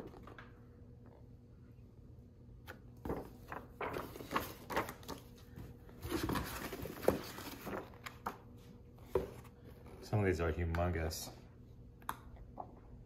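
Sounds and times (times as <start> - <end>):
paper posters rustling: 3.0 - 8.6.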